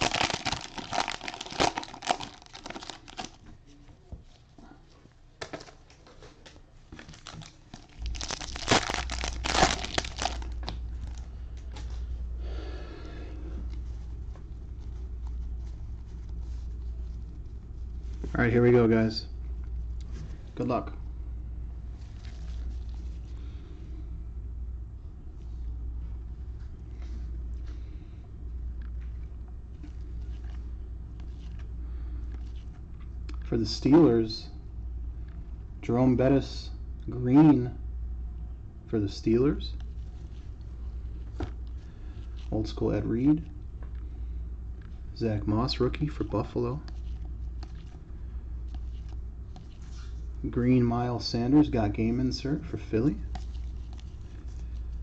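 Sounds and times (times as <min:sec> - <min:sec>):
cellophane crinkling and tearing: 0:00.0 - 0:03.4, 0:07.0 - 0:11.3
low steady hum: 0:00.0 - 0:55.0.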